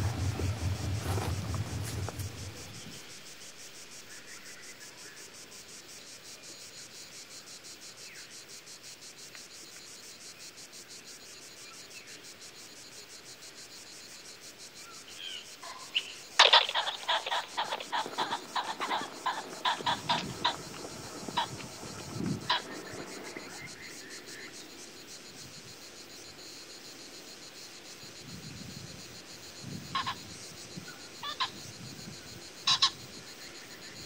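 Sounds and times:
low hum: 0.0s - 3.0s
insects chirping: 0.0s - 34.0s.

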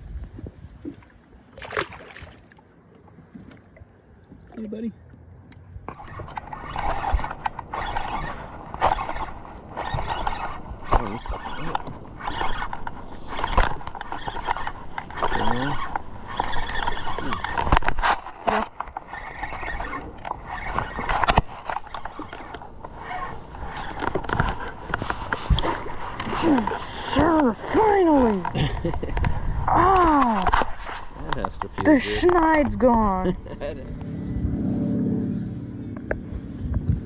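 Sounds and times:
wind and water rushing: 0.0s - 35.4s
short rising squeaks: 5.9s - 27.8s.

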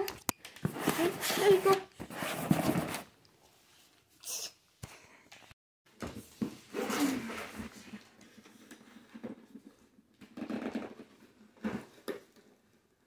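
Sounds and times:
cardboard rustling and scraping: 0.7s - 3.2s.

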